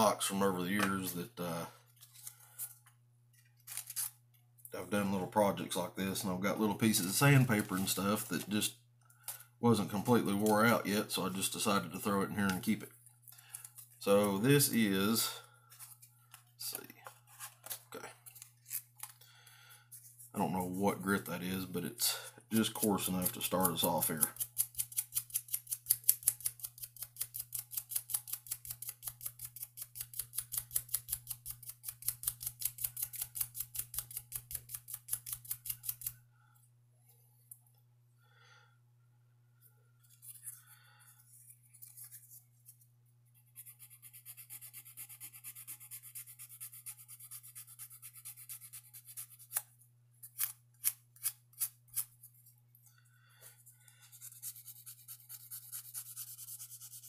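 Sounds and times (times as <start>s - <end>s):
sandpaper rubbing on metal: 54.2s - 57.0s.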